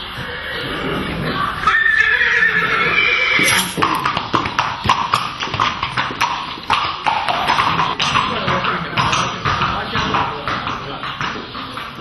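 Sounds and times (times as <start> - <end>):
horse whinnying: 0.2 - 4.1
hooves clip-clopping: 3.2 - 12.0.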